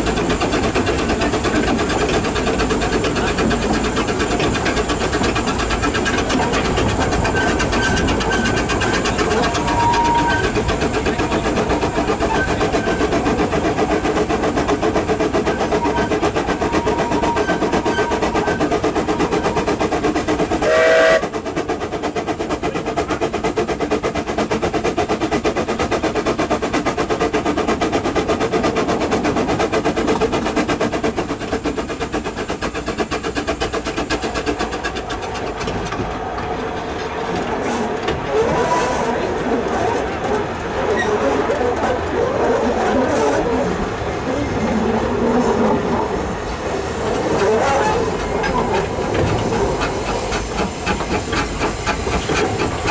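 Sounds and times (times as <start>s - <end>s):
steam locomotive exhaust beat: 0.0s - 41.4s, 42.3s - 52.9s
steam whistle blast: 9.5s - 10.5s, 20.6s - 21.3s.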